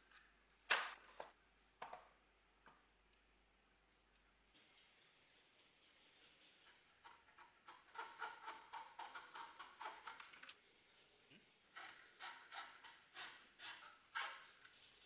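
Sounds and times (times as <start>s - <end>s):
hacksaw cutting metal: 7.4s - 10.2s, 11.7s - 14.5s.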